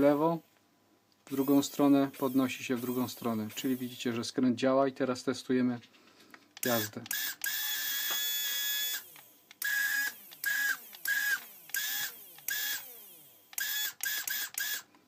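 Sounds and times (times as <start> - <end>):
small electric motor whirring: 1.3 - 4.0, 6.6 - 14.9.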